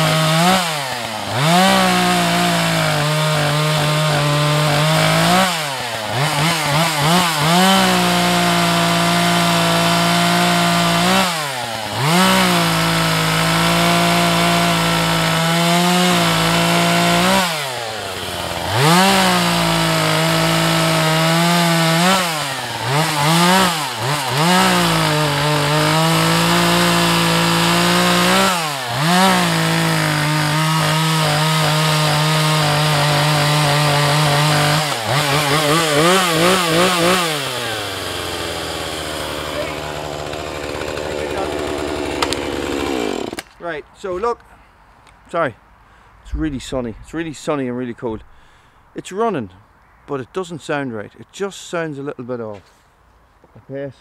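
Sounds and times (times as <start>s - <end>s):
chainsaw cutting log: 0.0s - 43.6s
person speaking: 39.4s - 42.0s, 43.6s - 44.6s, 46.2s - 48.4s.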